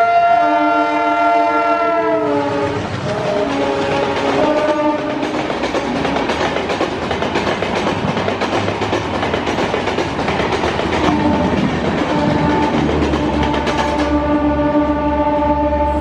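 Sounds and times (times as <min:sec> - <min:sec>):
locomotive horn: 0:00.0 - 0:06.2, 0:11.0 - 0:16.0
train wheels roaring on rails: 0:00.0 - 0:16.0
clatter over rail joints: 0:02.6 - 0:14.2.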